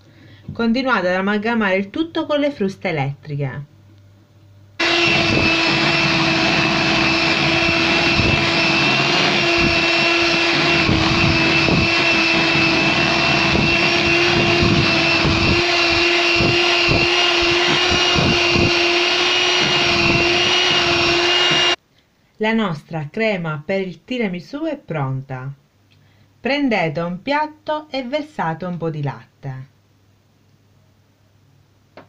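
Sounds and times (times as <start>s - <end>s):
electric hand mixer whirring: 4.8s - 21.8s.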